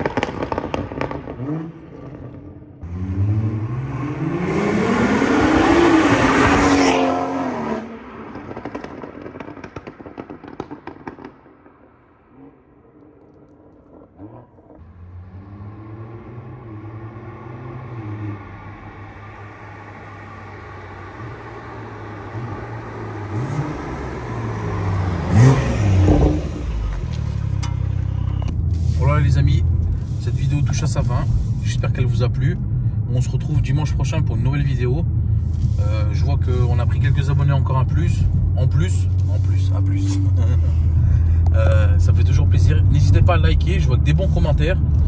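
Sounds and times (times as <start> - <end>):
exhaust pops and crackles: 0.0 - 2.5, 8.1 - 14.8, 25.4 - 45.0
car engine passing at speed: 0.1 - 11.4, 12.3 - 28.6.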